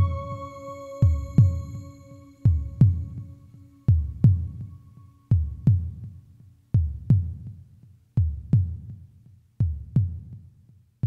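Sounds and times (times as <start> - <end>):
heartbeat thumps: 1.0 - 1.8, 2.5 - 3.3, 3.9 - 6.2.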